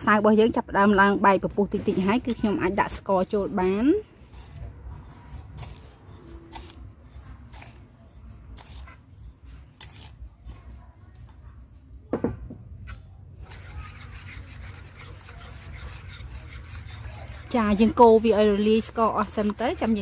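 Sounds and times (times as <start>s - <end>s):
wire whisk swishing batter: 13.4s - 20.0s.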